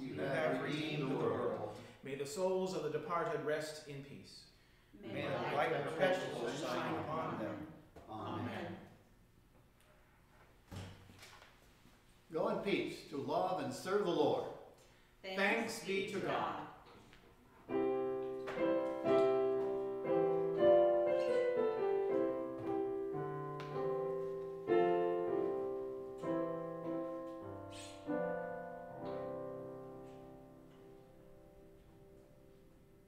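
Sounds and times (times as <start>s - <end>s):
piano playing slow chords: 17.7s - 33.0s.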